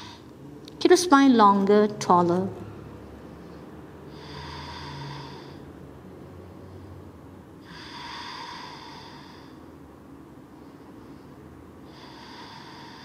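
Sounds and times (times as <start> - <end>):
person breathing slowly: 3.3 - 13.0.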